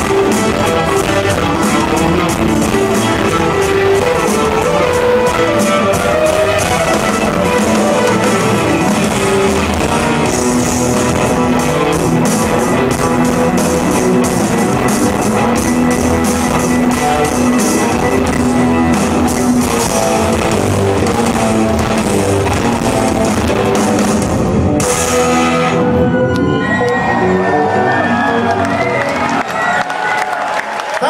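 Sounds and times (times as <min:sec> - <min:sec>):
drum kit: 0:00.0 - 0:26.0
electric guitar: 0:00.0 - 0:29.5
keyboards: 0:00.0 - 0:30.8
bass: 0:00.0 - 0:31.0.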